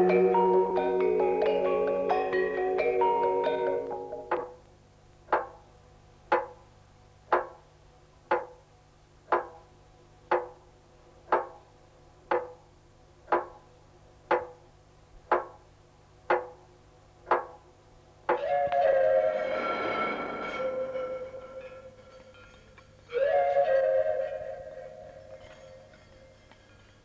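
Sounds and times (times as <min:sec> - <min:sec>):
sharp percussive knocks: 0:04.3 - 0:04.6, 0:05.3 - 0:05.7, 0:06.3 - 0:06.7, 0:07.3 - 0:07.7, 0:08.3 - 0:08.6, 0:09.3 - 0:09.7, 0:10.3 - 0:10.6, 0:11.3 - 0:11.6, 0:12.3 - 0:12.6, 0:13.3 - 0:13.6, 0:14.3 - 0:14.6, 0:15.3 - 0:15.6, 0:16.3 - 0:16.6, 0:17.2 - 0:17.6.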